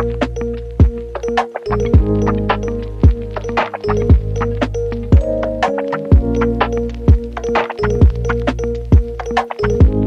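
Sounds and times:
electronic background music: 0:00.0 - 0:10.0.

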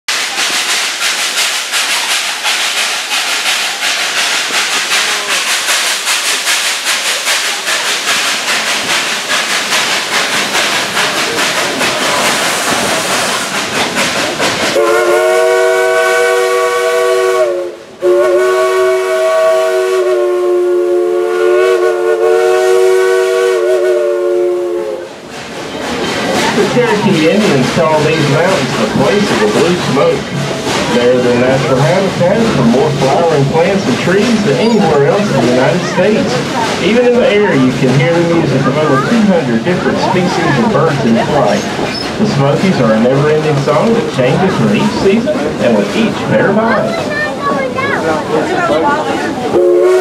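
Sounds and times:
running train clatter and hiss: 0:00.1 - 0:50.0
steam whistle blasts: 0:14.8 - 0:25.1, 0:49.5 - 0:50.0.

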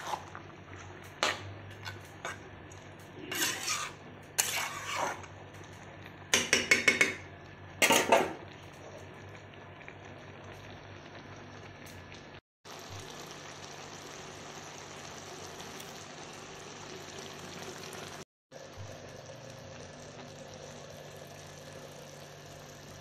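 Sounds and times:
metal spatula scraping: 0:00.0 - 0:05.3
cabbage sizzling: 0:00.0 - 0:06.7, 0:10.1 - 0:23.0.

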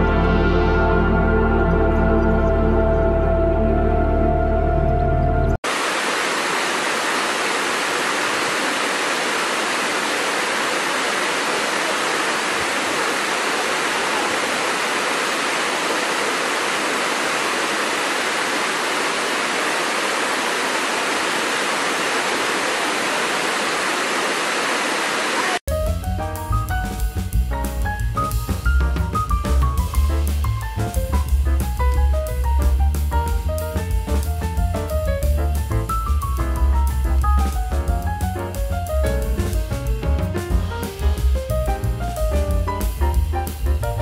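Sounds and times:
brief music: 0:00.0 - 0:05.6
waterfall rushing over rocks: 0:05.6 - 0:25.6.

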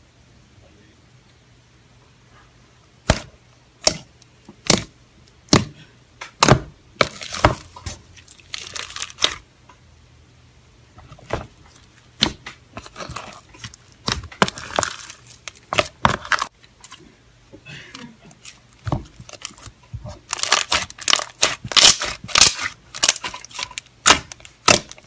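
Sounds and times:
slime popping and crackling: 0:03.1 - 0:04.9, 0:06.4 - 0:09.4, 0:11.3 - 0:16.6, 0:18.4 - 0:25.0.

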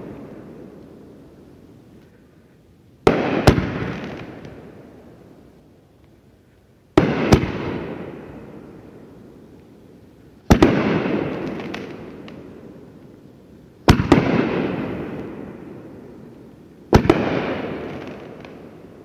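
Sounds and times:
faint fireworks crackles: 0:00.0 - 0:19.0
fireworks booming: 0:03.0 - 0:05.0, 0:06.9 - 0:09.0, 0:10.5 - 0:12.8, 0:13.8 - 0:16.2, 0:16.9 - 0:19.0.

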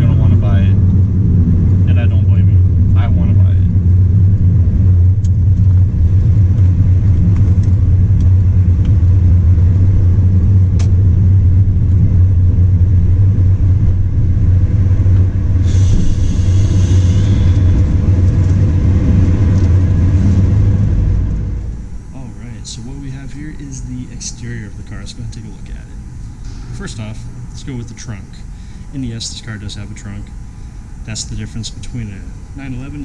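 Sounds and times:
car engine drone in cabin: 0:00.0 - 0:33.0
brief hiss: 0:15.6 - 0:17.7.

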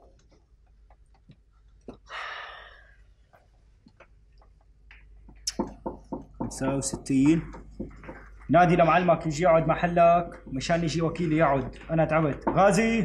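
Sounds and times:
person sighing: 0:02.0 - 0:03.0.

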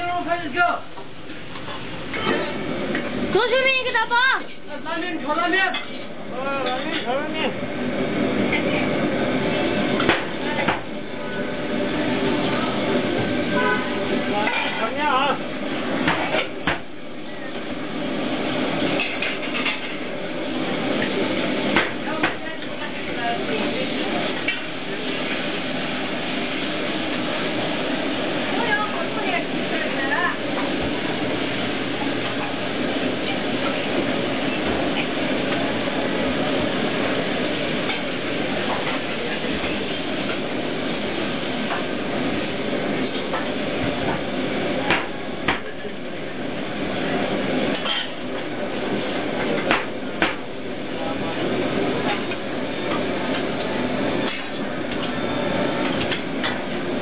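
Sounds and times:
kitchen background noise: 0:00.0 - 0:57.0
kitchen din: 0:00.9 - 0:07.5, 0:08.4 - 0:15.4, 0:16.0 - 0:17.7, 0:18.8 - 0:20.1, 0:20.9 - 0:25.8, 0:47.5 - 0:48.6.

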